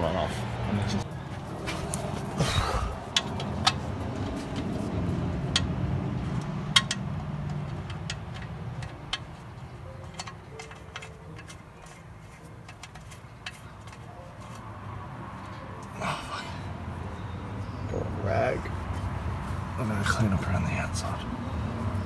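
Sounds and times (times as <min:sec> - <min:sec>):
sharp metal clicks and taps: 0:03.1 - 0:04.7, 0:05.4 - 0:14.6.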